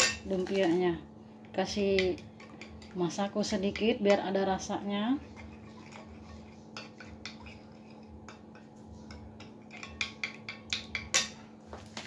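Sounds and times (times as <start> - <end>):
spoon stirring batter in glass bowl: 1.8 - 11.1.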